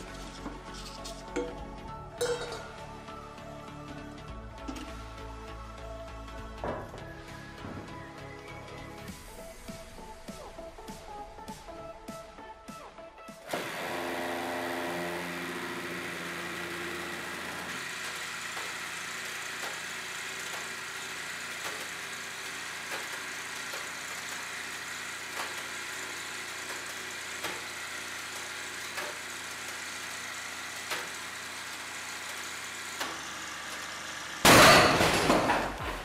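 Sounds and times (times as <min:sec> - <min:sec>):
hydraulic press pump running: 0:13.4 - 0:36.0
frozen steel head bursting bang: 0:34.4 - 0:35.8.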